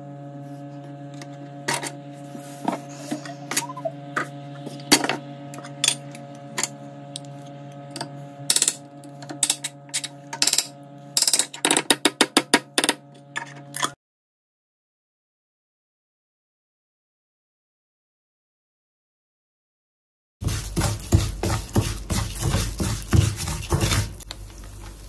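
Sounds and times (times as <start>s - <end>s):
steady hum: 0.0s - 13.9s, 20.4s - 25.0s.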